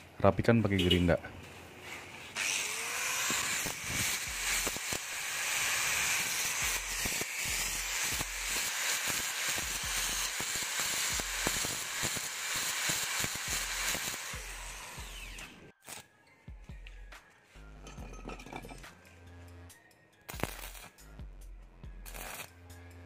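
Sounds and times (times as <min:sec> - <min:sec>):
angle grinder grinding steel: 0:02.3 - 0:16.0.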